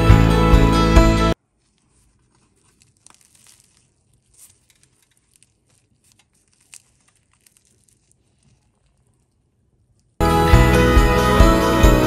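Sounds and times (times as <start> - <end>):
pastry crackling and tearing: 1.4 - 10.2.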